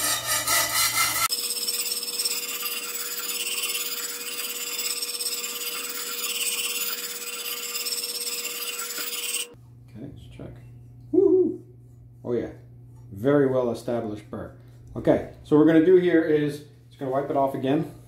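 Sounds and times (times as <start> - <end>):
sharpening plate rasping on steel: 0.0 - 9.6.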